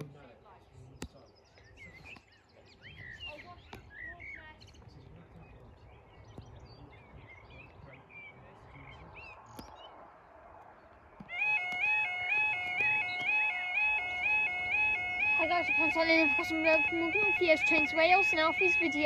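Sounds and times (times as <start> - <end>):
small birds chirping: 0.0 - 19.0.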